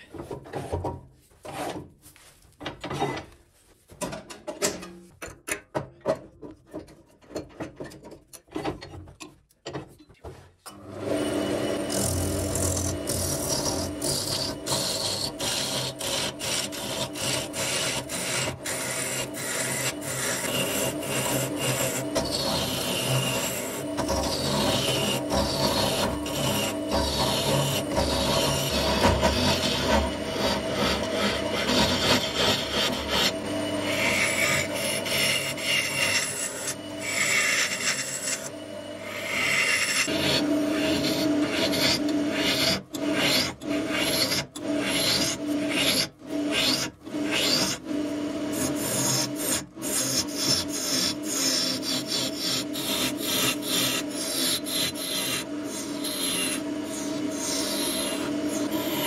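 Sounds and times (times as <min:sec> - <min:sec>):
lathe motor hum: 0:10.9 - 0:45.8, 0:46.5 - 0:59.0
gouge rasping on spinning wood: 0:11.8 - 0:47.8, 0:48.5 - 0:59.0.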